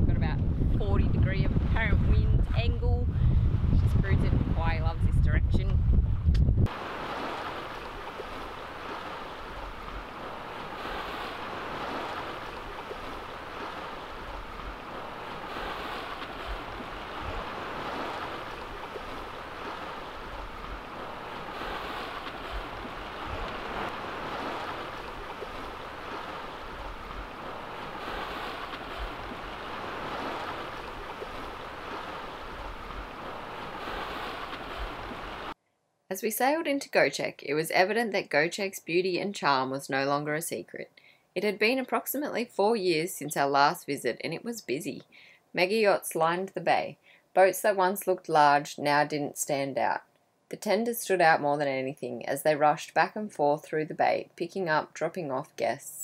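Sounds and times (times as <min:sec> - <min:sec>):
wind buffeting microphone: 0:00.0 - 0:35.5
water splashing along hull: 0:06.7 - 0:35.6.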